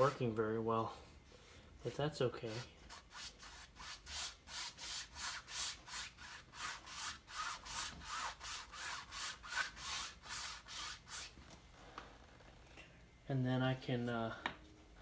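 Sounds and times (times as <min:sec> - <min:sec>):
paint brush scrubbing canvas: 0:00.0 - 0:00.3, 0:01.3 - 0:11.4.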